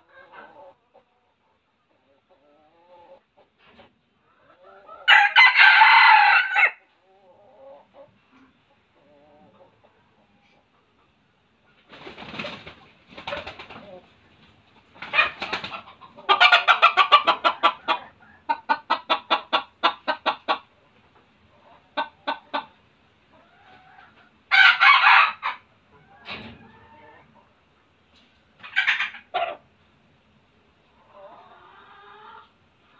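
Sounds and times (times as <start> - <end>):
rooster clucking: 0.0 - 3.5, 14.8 - 20.9, 21.5 - 27.5, 28.6 - 29.7
rooster harsh call: 5.1 - 6.8.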